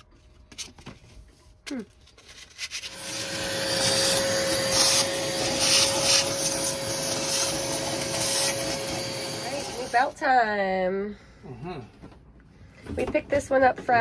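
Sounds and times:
hose nozzle sucking dust: 2.9s - 10.1s
vacuum cleaner running: 2.9s - 10.2s.

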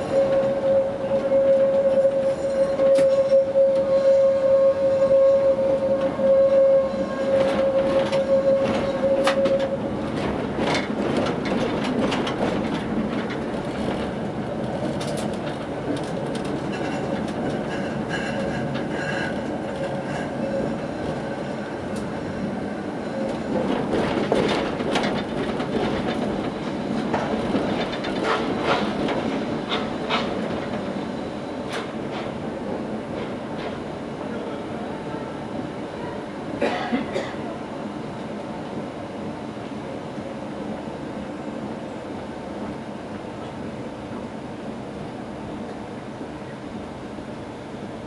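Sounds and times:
tram wheel squeal: 0.0s - 12.5s, 16.1s - 32.5s
tram rolling rumble: 0.0s - 48.0s.

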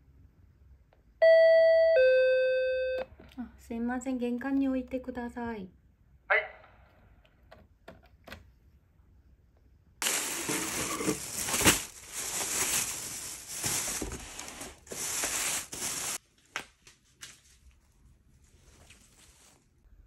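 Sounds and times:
cardboard box packaging crinkling: 10.0s - 16.2s
soft handling sounds: 10.0s - 19.9s.

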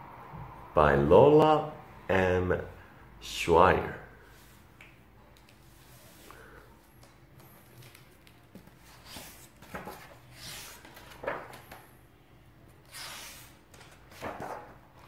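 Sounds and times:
book pages swishing: 7.6s - 11.8s.

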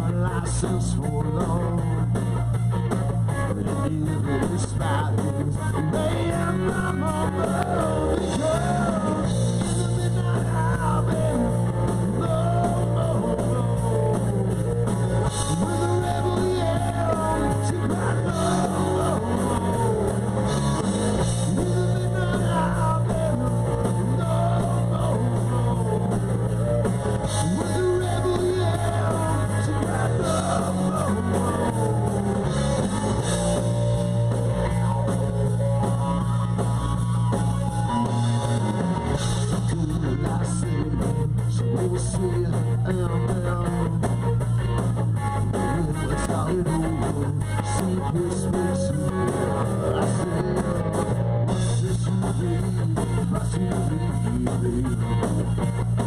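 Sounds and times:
bass line: 0.0s - 56.0s
electric guitar: 0.0s - 56.0s
rock band playing: 0.0s - 56.0s.

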